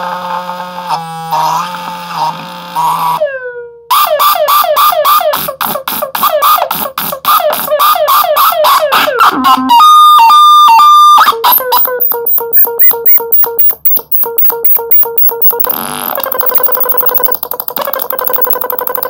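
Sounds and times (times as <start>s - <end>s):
synthesizer held tone: 9.3s - 19.0s
synthesizer falling chirps: 9.6s - 19.0s
stuttering short beeps: 11.6s - 19.0s.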